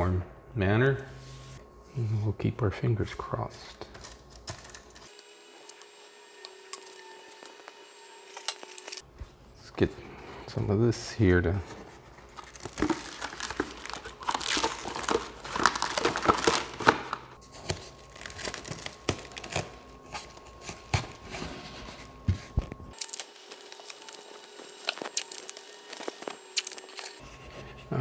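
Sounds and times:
cling wrap crackling: 0:12.2 - 0:19.9, 0:23.0 - 0:27.2.

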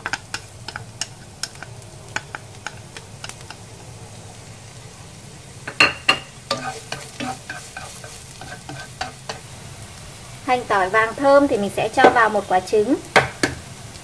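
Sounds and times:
chopsticks scraping a pan: 0:00.0 - 0:03.7, 0:06.5 - 0:09.5
small crackles and pops: 0:00.0 - 0:04.2
shallot and garlic sizzling in oil: 0:00.0 - 0:14.0.

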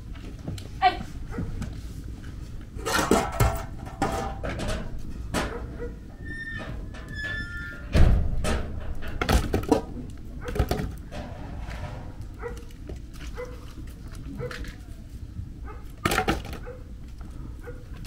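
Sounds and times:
knocks of pan and firewood: 0:02.8 - 0:05.6, 0:08.1 - 0:13.9, 0:15.9 - 0:16.7.

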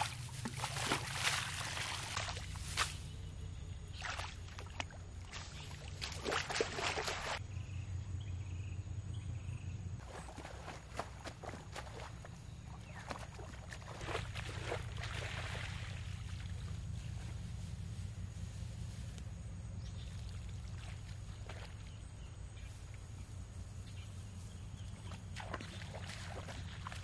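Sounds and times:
water splashing and sloshing: 0:00.0 - 0:03.2, 0:03.8 - 0:07.4, 0:10.0 - 0:18.1, 0:19.9 - 0:23.2, 0:24.5 - 0:27.0.

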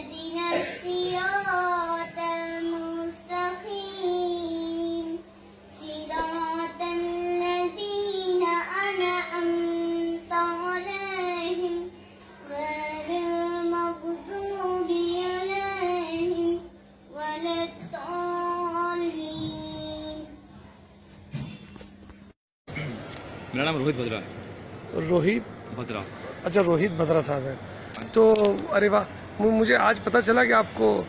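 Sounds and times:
girl chanting melodic recitation: 0:00.0 - 0:16.7.

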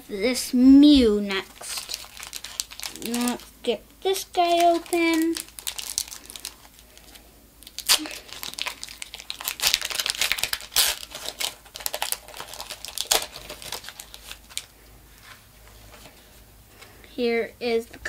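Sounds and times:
foil wrapper crinkling and tearing: 0:01.3 - 0:15.4.

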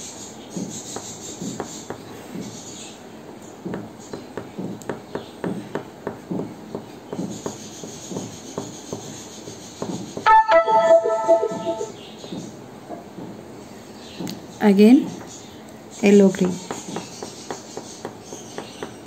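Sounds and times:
loud musical tone: 0:10.3 - 0:12.0.

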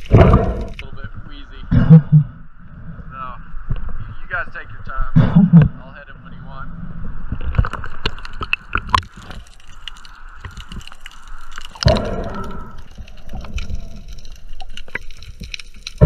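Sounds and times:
muffled underwater crackling clicks: 0:00.0 - 0:01.4, 0:03.6 - 0:04.7, 0:07.2 - 0:16.0
water sloshing and splashing: 0:07.3 - 0:16.0.

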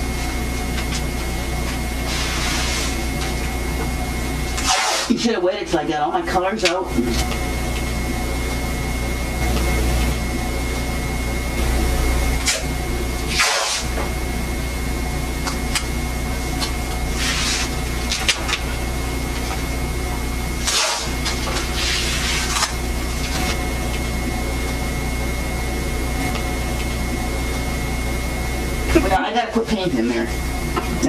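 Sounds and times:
steady low hum: 0:00.0 - 0:31.0
masking tape tearing off roll: 0:04.6 - 0:05.1, 0:13.3 - 0:13.9, 0:20.6 - 0:22.8.

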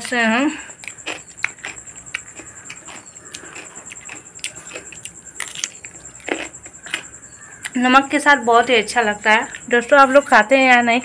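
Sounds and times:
chewing crunchy fruit: 0:00.0 - 0:07.8.

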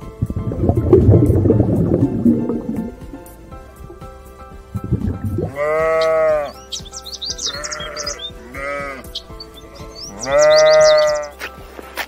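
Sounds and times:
background music: 0:00.0 - 0:12.0
animal calling: 0:05.4 - 0:11.4.

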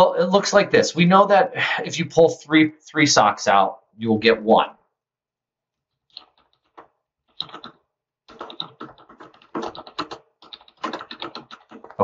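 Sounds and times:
computer keyboard typing: 0:06.0 - 0:12.0.

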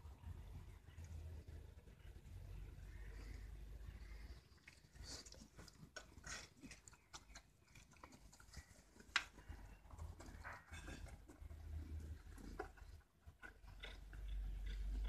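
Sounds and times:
animals licking and mouthing: 0:04.0 - 0:15.0.

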